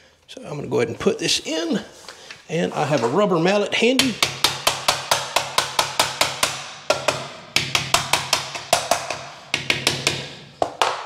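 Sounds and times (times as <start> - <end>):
rubber mallet knocking plastic: 4.0 - 11.0.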